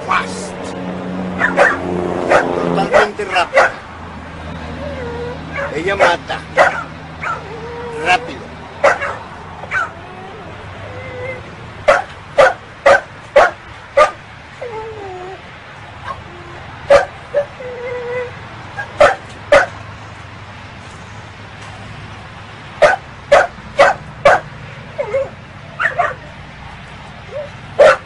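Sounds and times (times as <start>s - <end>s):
dog barking in sharp yaps: 1.4s - 3.8s, 8.8s - 9.9s, 27.4s - 28.0s
dog whining: 4.6s - 11.6s, 14.6s - 15.5s, 16.1s - 19.2s, 25.0s - 26.3s.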